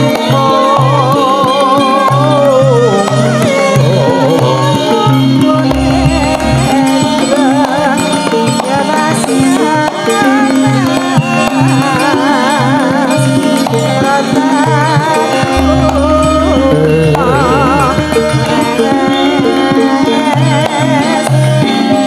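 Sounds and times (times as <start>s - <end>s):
high wavering melodic line: 3.3s - 8.2s, 14.2s - 20.0s
metallophone tones: 3.3s - 8.3s, 14.3s - 20.0s
drum strokes: 3.6s - 9.0s, 14.2s - 19.9s.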